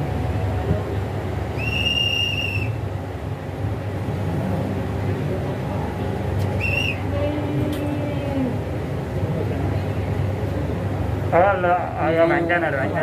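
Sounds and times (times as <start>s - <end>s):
hand whistle blasts: 1.6s - 2.8s, 6.6s - 7.0s.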